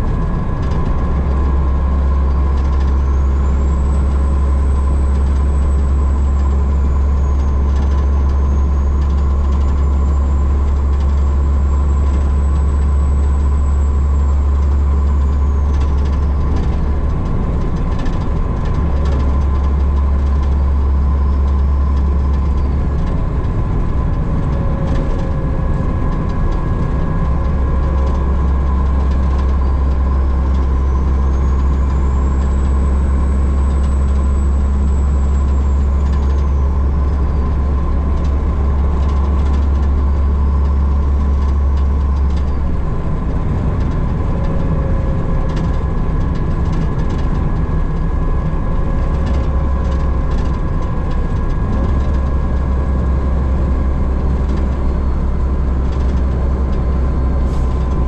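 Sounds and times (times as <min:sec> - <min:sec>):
diesel truck engine drone: 0:00.0 - 0:58.0
road noise: 0:00.0 - 0:58.0.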